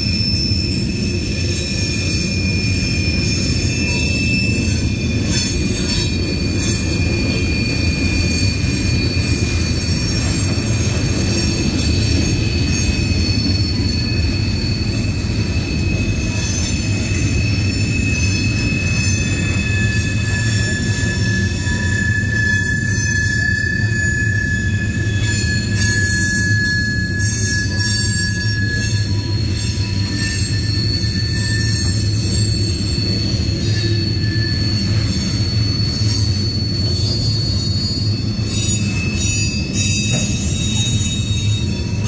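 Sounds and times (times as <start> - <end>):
high-pitched wheel squeal: 0.0 - 42.0
train wheels rumbling on rail: 0.0 - 42.0.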